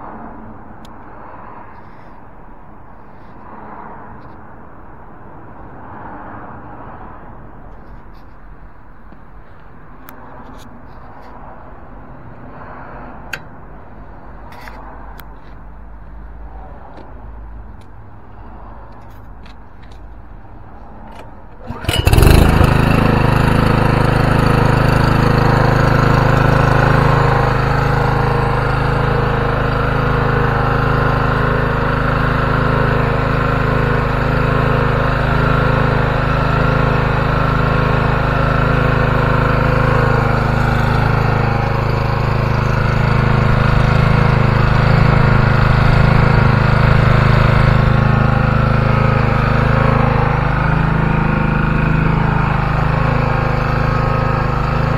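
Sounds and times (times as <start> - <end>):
small petrol engine running: 21.5 - 54.9.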